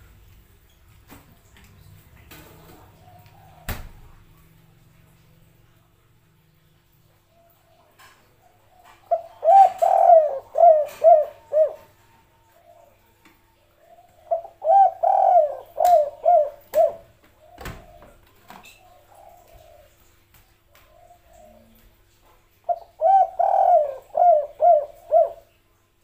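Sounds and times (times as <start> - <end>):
dove cooing: 7.4 - 20.1, 20.8 - 21.8, 22.7 - 25.6.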